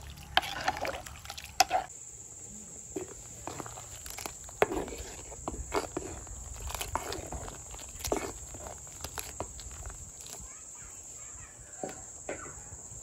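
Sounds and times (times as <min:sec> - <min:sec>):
liquid sloshing: 0:00.0 - 0:01.9, 0:03.0 - 0:10.4
metal ladle scraping clay pot: 0:00.0 - 0:01.9, 0:03.0 - 0:09.9.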